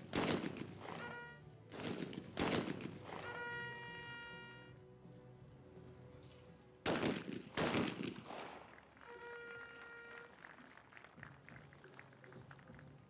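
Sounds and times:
gunshot echo: 0.0s - 3.4s, 6.9s - 8.7s
shotgun shots: 0.0s - 3.4s, 6.9s - 8.7s.

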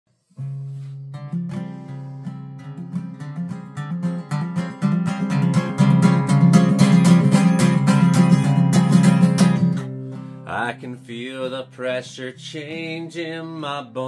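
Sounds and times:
acoustic guitar strumming chords: 0.4s - 14.0s.

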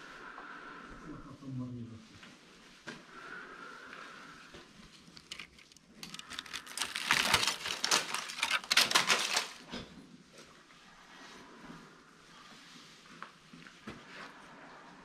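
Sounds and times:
dense crackling and crunching: 4.8s - 9.8s.

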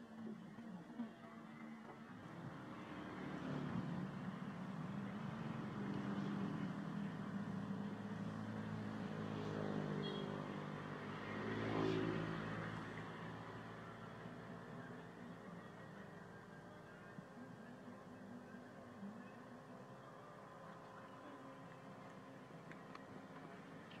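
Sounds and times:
vehicle engine passing by: 0.2s - 16.3s.

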